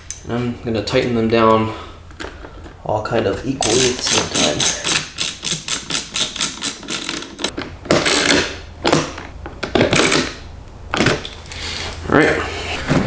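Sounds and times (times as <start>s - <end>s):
hand screwdriver clicking: 3.6s - 7.5s.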